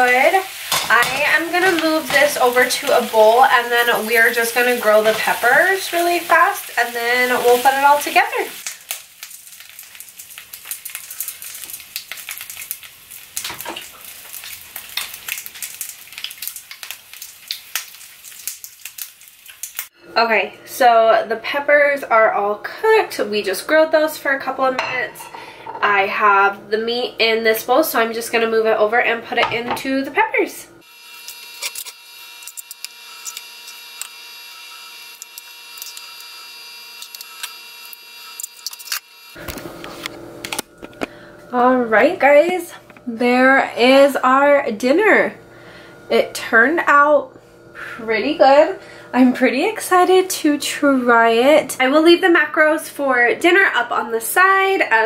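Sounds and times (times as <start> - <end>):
peppers sizzling in frying pan: 0.0 - 20.0, 27.6 - 55.0
steady hum: 19.9 - 52.0.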